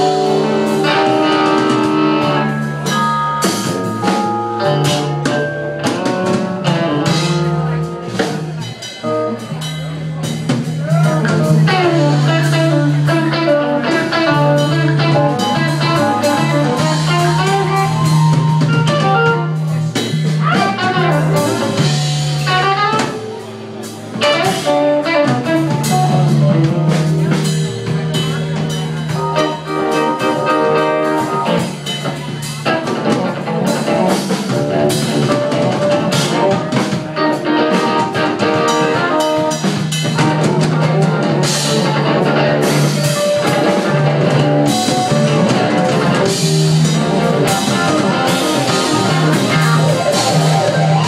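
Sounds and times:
bass: 0.0 - 51.0
drum kit: 0.0 - 51.0
electric guitars: 0.0 - 51.0.

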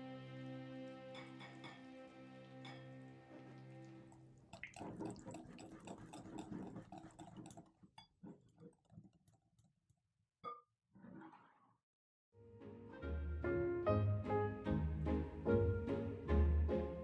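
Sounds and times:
music chord: 0.0 - 4.1
wet crackly mixing: 3.1 - 9.8.

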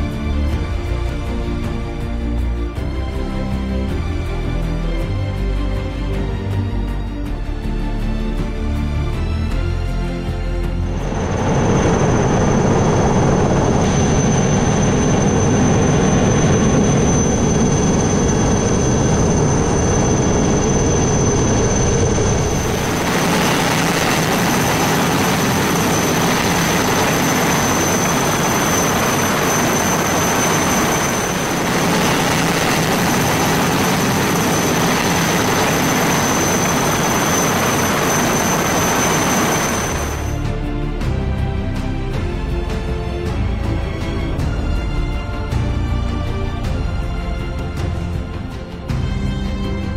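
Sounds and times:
aircraft engine noise: 0.0 - 49.9
thin high whine: 10.8 - 40.5.

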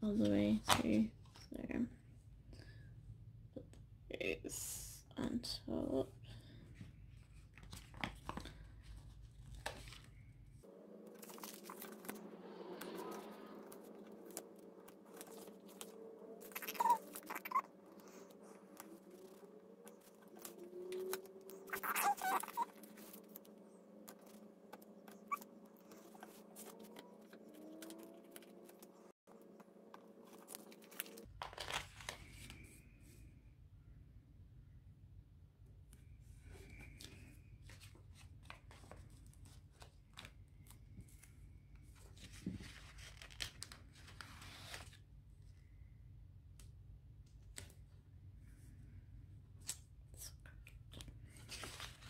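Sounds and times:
paper pages rustling: 6.8 - 10.3, 11.1 - 32.8, 36.7 - 45.1, 51.0 - 52.0.

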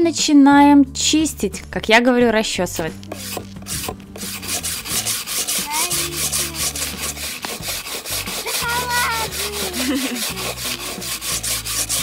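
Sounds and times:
wire brush scrubbing wood: 3.0 - 12.0.

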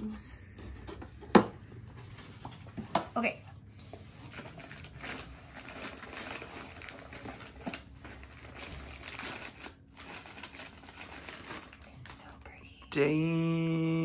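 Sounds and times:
plastic packaging crinkling: 4.0 - 12.7.

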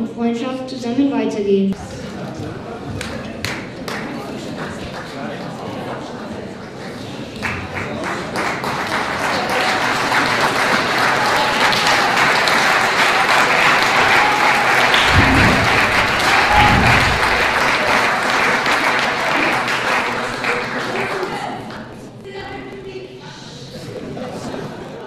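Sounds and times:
audience applauding: 3.0 - 5.8, 7.4 - 21.9
low rumbles: 13.6 - 18.5.

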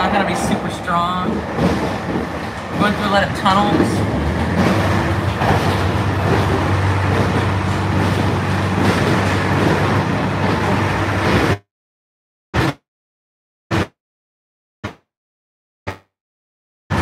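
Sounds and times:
train wheels roaring on rails: 0.0 - 11.6.

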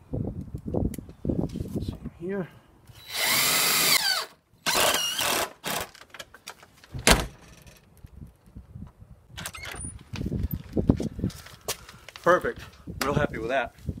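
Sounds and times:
cordless drill driving screws: 3.0 - 6.0
sharp thump: 7.0 - 7.4.

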